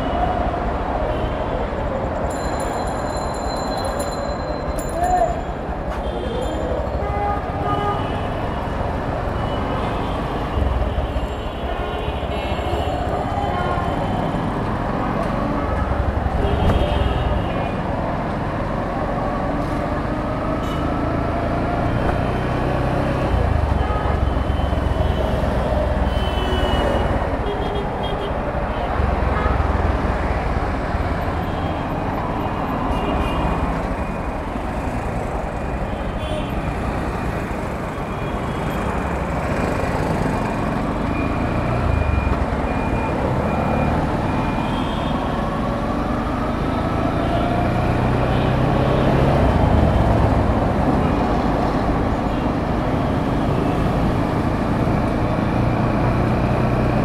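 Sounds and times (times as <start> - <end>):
tyre and road noise: 0.0 - 57.0.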